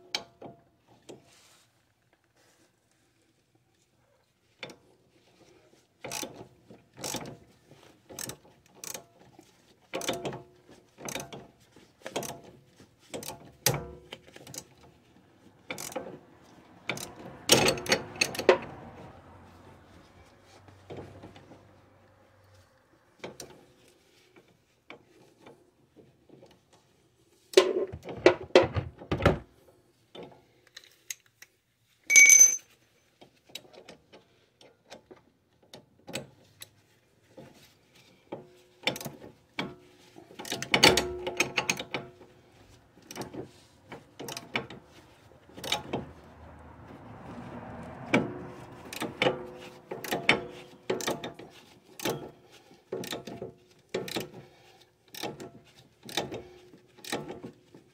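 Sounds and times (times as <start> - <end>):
ratcheting wrench clicking: 15.8 - 16.0
ringing metal clink: 32.1 - 32.7.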